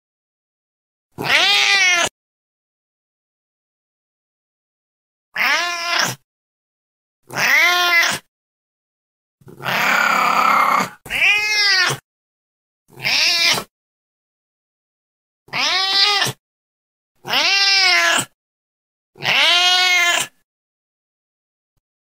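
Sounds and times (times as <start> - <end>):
cat meowing: 1.2 - 2.1, 5.4 - 6.2, 7.3 - 8.3, 9.5 - 12.0, 12.9 - 13.7, 15.5 - 16.4, 17.2 - 18.4, 19.2 - 20.4.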